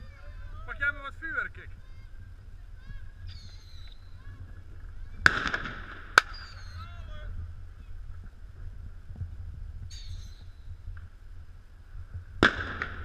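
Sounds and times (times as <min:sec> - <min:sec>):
firecracker bangs: 0:05.2 - 0:06.6, 0:12.4 - 0:13.0.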